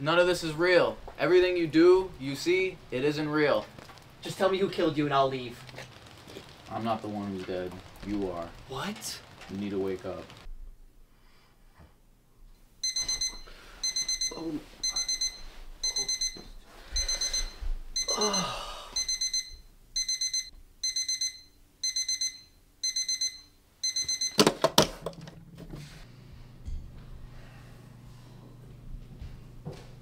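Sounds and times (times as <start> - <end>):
alarm clock beeping: 12.8 - 24.6.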